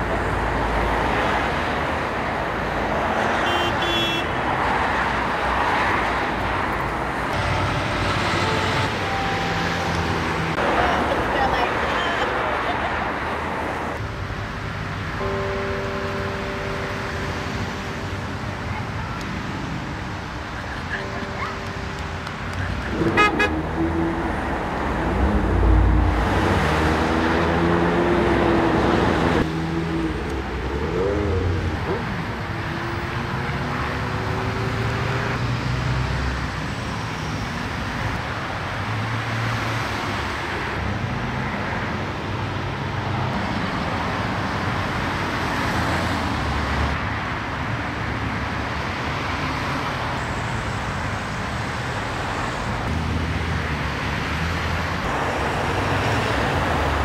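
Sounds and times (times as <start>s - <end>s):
road traffic passing: 0.0s - 57.0s
car horns: 3.0s - 4.6s, 7.3s - 11.1s, 20.7s - 24.1s.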